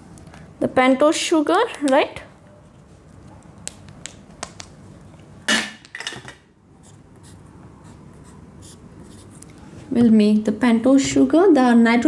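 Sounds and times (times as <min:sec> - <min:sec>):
marker scratching on whiteboard: 0:06.8 - 0:09.5.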